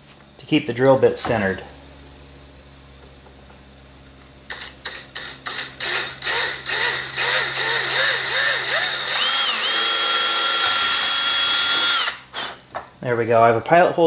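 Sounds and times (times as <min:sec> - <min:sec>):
cordless drill drilling: 0:04.5 - 0:12.2.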